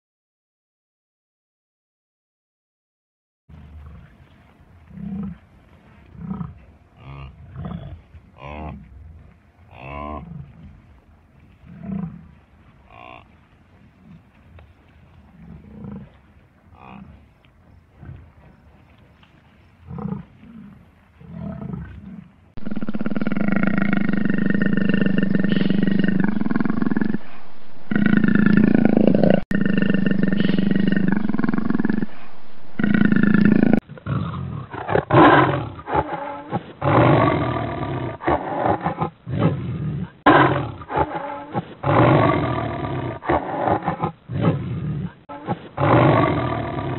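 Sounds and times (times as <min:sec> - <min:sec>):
buffalo grunting: 0:03.5 - 0:10.8, 0:11.5 - 0:14.3, 0:15.1 - 0:18.9, 0:19.8 - 0:46.9
leopard calling: 0:15.2 - 0:33.8.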